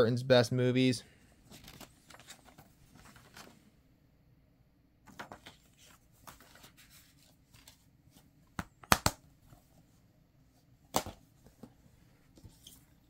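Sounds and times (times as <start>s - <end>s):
paper rustling: 1.4s - 3.6s, 5.1s - 8.3s.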